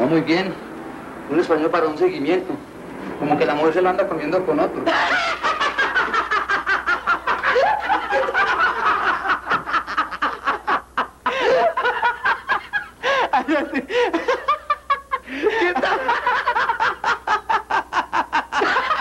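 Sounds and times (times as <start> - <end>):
people laughing hard: 4.8 - 19.0.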